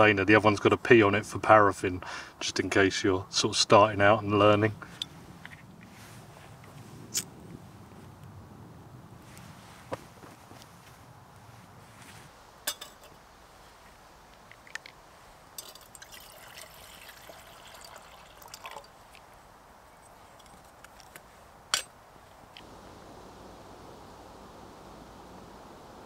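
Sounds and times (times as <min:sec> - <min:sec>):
metal clinks: 0:12.7 - 0:13.2
water pouring into steel cup: 0:15.6 - 0:19.1.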